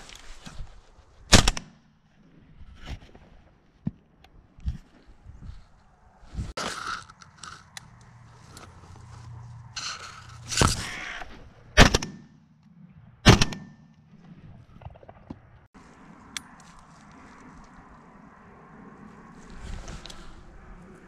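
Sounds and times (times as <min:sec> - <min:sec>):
rustle of movement: 0:00.0 - 0:01.3, 0:04.6 - 0:11.7, 0:15.7 - 0:21.0
shotgun shots: 0:11.8 - 0:12.3, 0:13.2 - 0:13.8.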